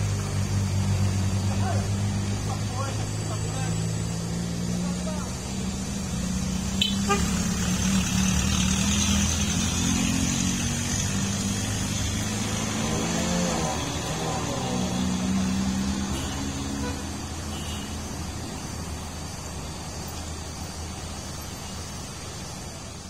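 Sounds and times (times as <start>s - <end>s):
engine pitch rising and falling: 0.0s - 16.8s
road traffic hum: 0.0s - 23.0s.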